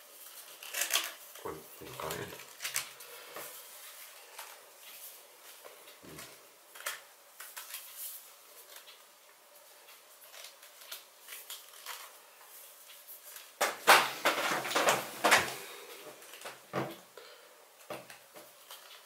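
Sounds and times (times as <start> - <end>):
plastic scraping: 13.6 - 16.9.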